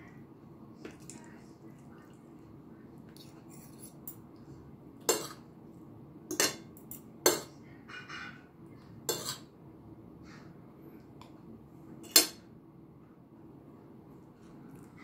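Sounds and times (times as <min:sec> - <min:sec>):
cutlery scraping: 0:05.0 - 0:05.4, 0:06.3 - 0:08.5, 0:09.1 - 0:09.5, 0:12.0 - 0:12.4
cutlery clinking on plate: 0:06.3 - 0:08.5.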